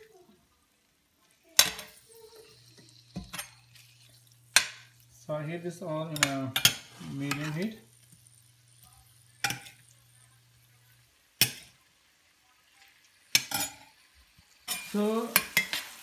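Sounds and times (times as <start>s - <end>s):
chicken sizzling in oil: 0.0s - 16.0s
metal clinking on skillet: 1.5s - 5.1s, 6.1s - 10.7s, 11.4s - 11.8s, 12.8s - 16.0s.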